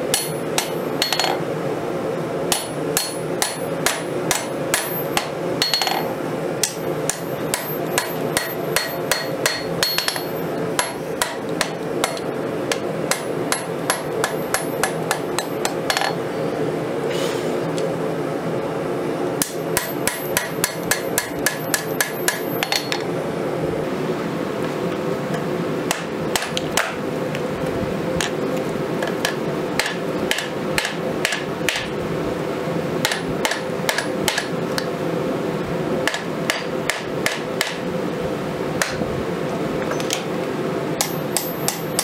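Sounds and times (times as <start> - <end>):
steady hum: 0.0 - 42.0
hammer striking steel on anvil: 0.1 - 1.4, 2.5 - 16.2, 19.4 - 23.0, 25.9 - 27.0, 29.2 - 31.9, 33.0 - 34.5, 36.1 - 37.8, 41.0 - 42.0.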